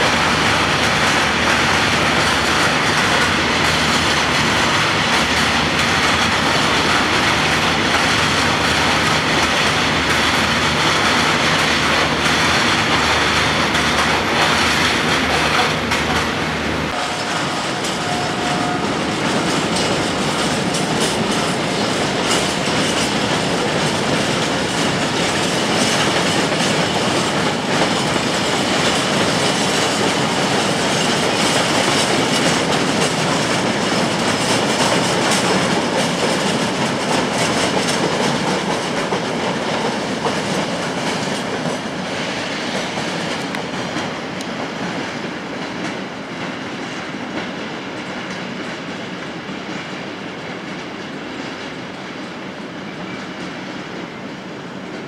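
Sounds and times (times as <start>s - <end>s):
train wheels clicking over rail joints: 0.0s - 55.0s.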